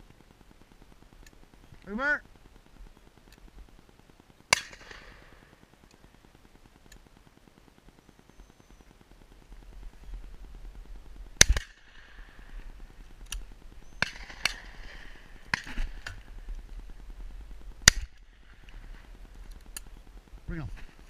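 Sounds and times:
faint cracks: 0:00.0 - 0:08.0, 0:08.9 - 0:21.0
shotgun shots: 0:04.5 - 0:05.4, 0:11.4 - 0:11.9, 0:14.0 - 0:16.1, 0:17.8 - 0:18.2.

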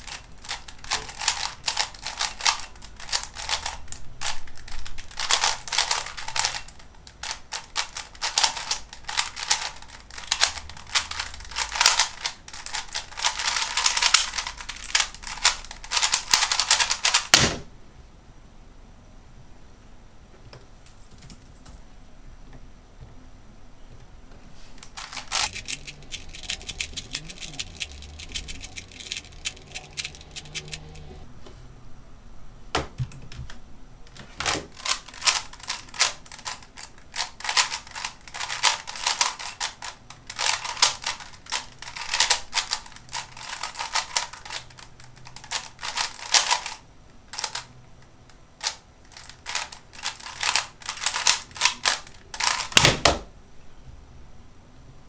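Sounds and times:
plastic puzzle cube clicking: 0:25.0 - 0:31.0.

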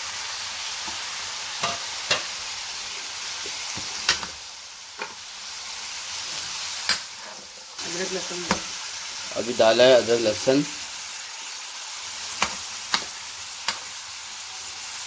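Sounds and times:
food sizzling in hot oil: 0:00.0 - 0:15.0
metal spoon clinking against pan: 0:01.6 - 0:02.3.

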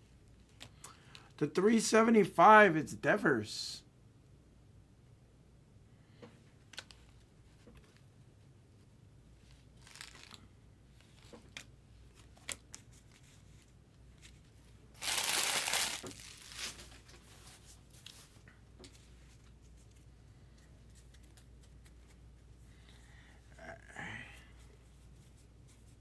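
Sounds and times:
cards clicking and rustling: 0:09.8 - 0:10.4, 0:15.0 - 0:17.0, 0:20.8 - 0:22.2
wrapper tearing open: 0:09.8 - 0:10.4, 0:15.0 - 0:17.0.

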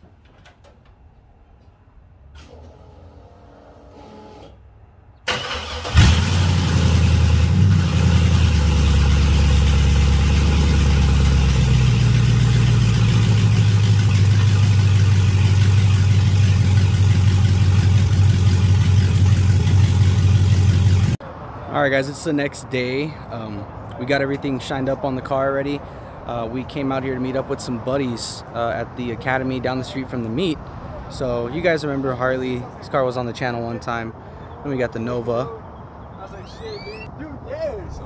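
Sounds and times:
engine cranking: 0:05.3 - 0:21.2
loud car engine idling: 0:06.0 - 0:21.2.

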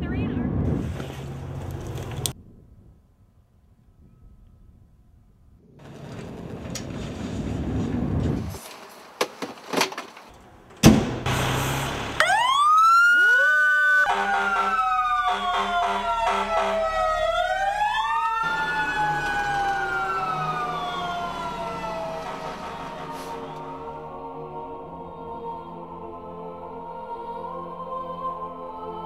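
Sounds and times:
sharp bang: 0:10.8 - 0:12.2
fire engine siren wailing: 0:11.3 - 0:24.9
rapid pulsing siren tone: 0:12.2 - 0:24.4.

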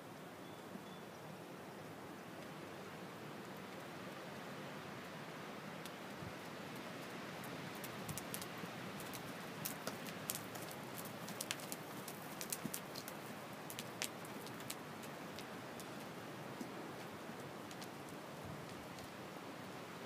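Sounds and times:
faint outdoor hiss: 0:00.0 - 0:20.0
light irregular clicks and taps: 0:07.8 - 0:17.1.

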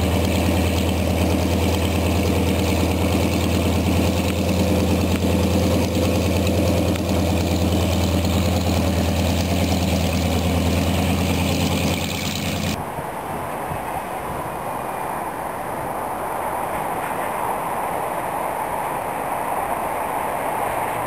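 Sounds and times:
radial aircraft engine idling: 0:00.0 - 0:12.8.

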